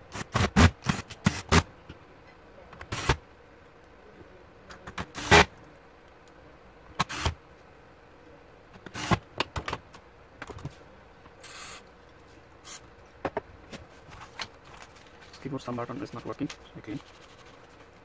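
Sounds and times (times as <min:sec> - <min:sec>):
laptop parts clicking and knocking: 0:08.7 - 0:09.8.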